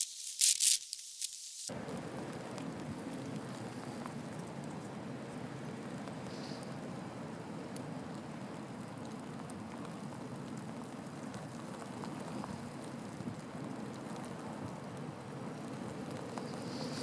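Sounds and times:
wind rushing through dry grass: 1.7s - 17.0s
faint ticks: 15.6s - 17.0s.

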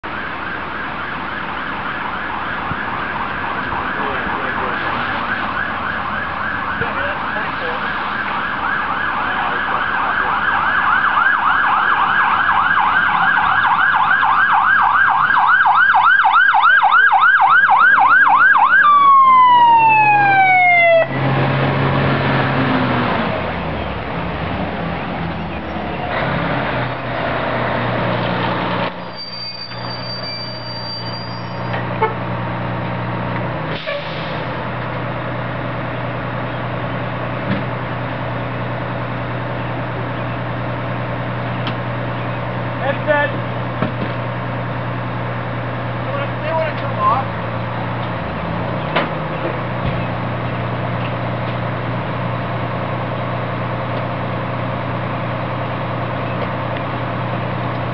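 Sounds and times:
fire engine siren yelping: 0.0s - 57.9s
diesel engine driving past: 18.8s - 57.9s.

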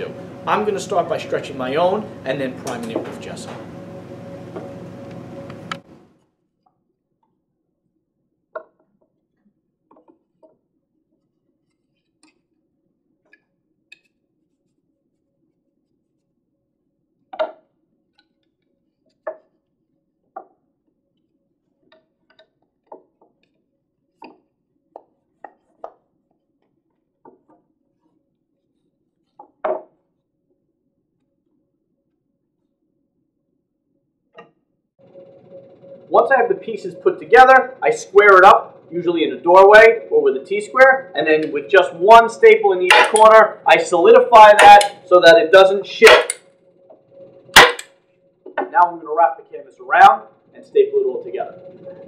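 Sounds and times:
faint steady hum: 0.0s - 6.2s
wooden knocks and clunks: 29.4s - 29.9s.

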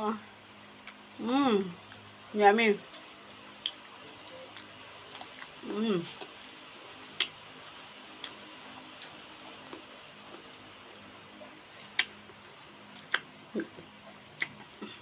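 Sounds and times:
faint room hum: 0.0s - 15.0s
mouth chewing clicks and smacks: 13.0s - 15.0s.

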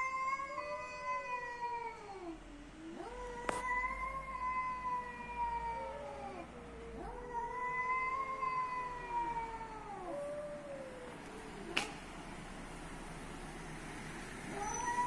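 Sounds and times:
cats yowling: 0.0s - 12.0s, 14.4s - 15.0s.

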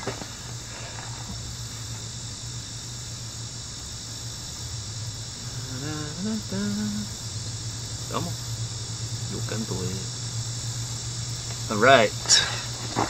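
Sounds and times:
insects chirring: 0.0s - 13.0s
low hum: 0.0s - 13.0s.

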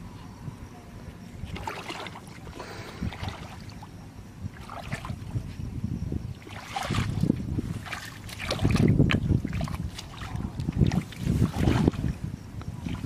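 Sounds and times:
feet splashing in muddy water: 1.4s - 3.9s, 4.5s - 5.3s, 6.3s - 12.2s.

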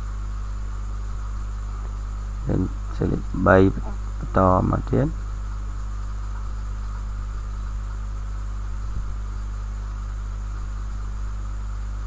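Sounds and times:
electrical mains hum with hiss: 0.0s - 12.0s
faint high whine: 0.0s - 12.0s.

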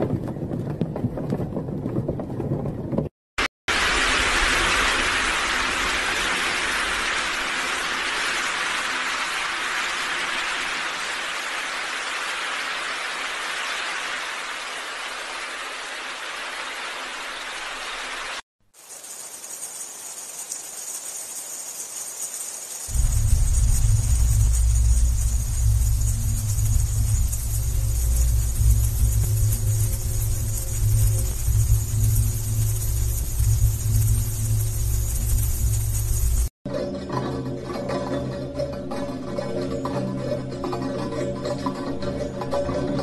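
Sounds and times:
dense rain-like hiss: 3.7s - 36.5s
faint hiss with high whine: 3.7s - 36.5s
loud low hum: 22.9s - 36.5s.

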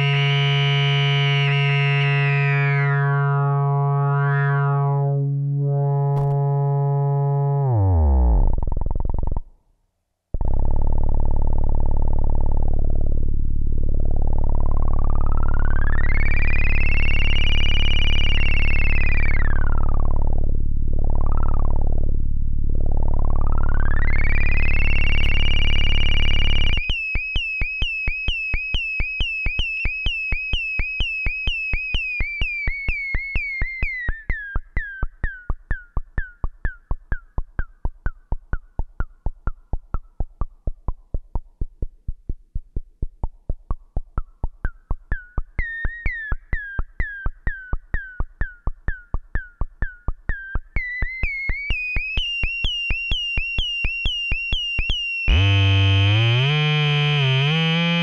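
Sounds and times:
buzzy synth tone: 0.0s - 9.4s, 10.4s - 26.9s, 55.1s - 58.0s.

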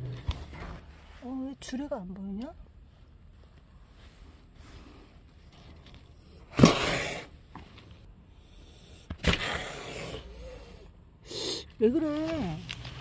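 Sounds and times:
cat hissing: 6.3s - 7.3s, 8.4s - 11.8s.

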